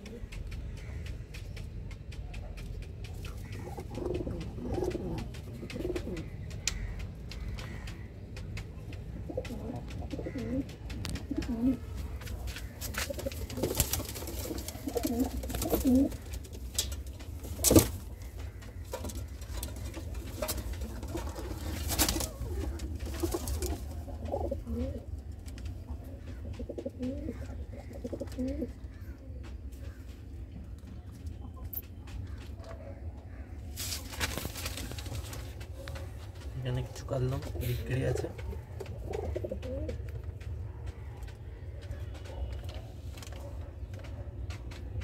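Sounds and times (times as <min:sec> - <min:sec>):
knocks and rustles: 0:00.0 - 0:45.0
pigeons cooing: 0:00.0 - 0:45.0.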